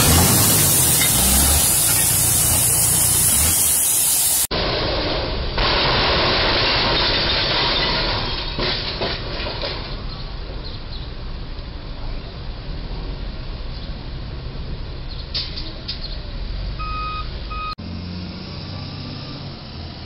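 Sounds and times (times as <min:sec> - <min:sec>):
steady rushing hiss: 0:00.0 - 0:04.5
road noise: 0:00.0 - 0:06.5, 0:08.1 - 0:20.0.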